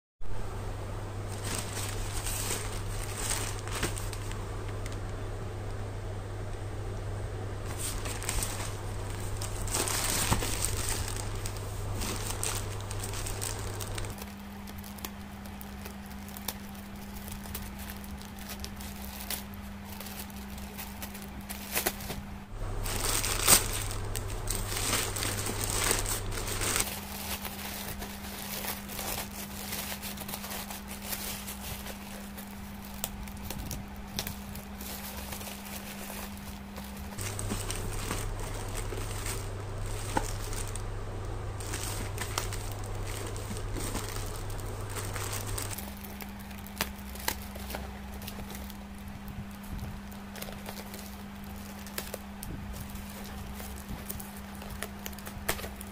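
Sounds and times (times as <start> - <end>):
bubble wrap rustling: 0.4 - 55.9
plastic mailer bag crinkling: 1.1 - 5.6, 7.5 - 55.9
plastic tearing: 1.3 - 5.2, 7.6 - 55.9
scissors cutting plastic: 41.6 - 55.9.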